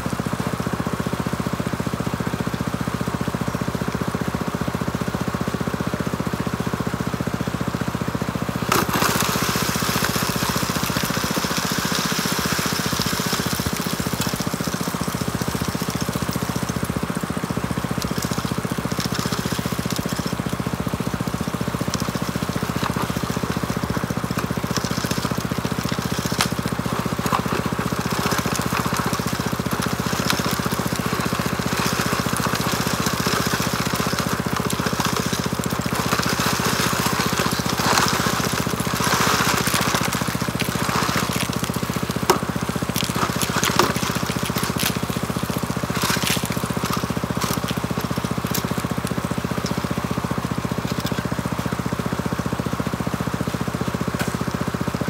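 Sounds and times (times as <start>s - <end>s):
gravel and water rushing over bars: 0.0s - 55.0s
small water pump engine running: 0.0s - 55.0s.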